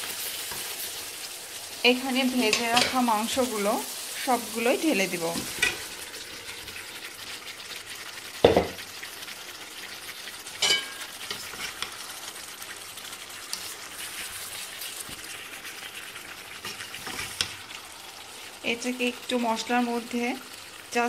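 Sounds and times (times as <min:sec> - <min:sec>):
chicken sizzling in a pot: 0:00.0 - 0:21.0
metal spatula clanging on pot: 0:02.5 - 0:03.0, 0:10.6 - 0:11.1.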